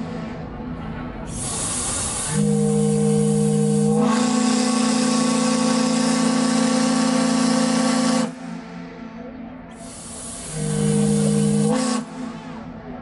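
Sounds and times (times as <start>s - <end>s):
steam hiss: 1.3s - 8.6s, 9.7s - 12.7s
steam whistle blast: 1.3s - 8.9s, 9.8s - 12.7s.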